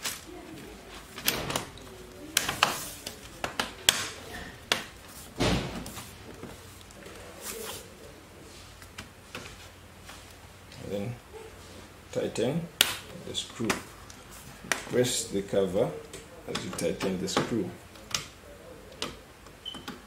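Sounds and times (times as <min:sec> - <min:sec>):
dull thump: 0:05.4 - 0:06.0.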